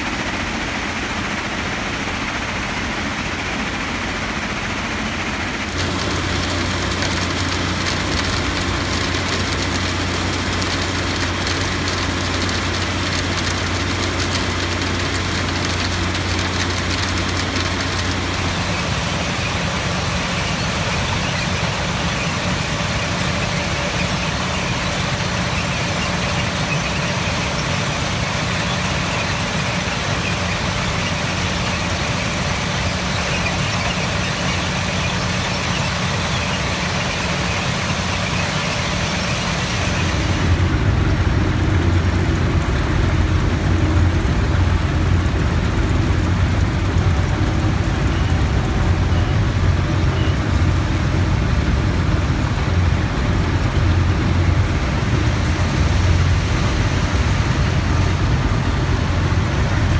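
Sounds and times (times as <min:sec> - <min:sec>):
track machine mechanical din: 0:00.0 - 0:59.9.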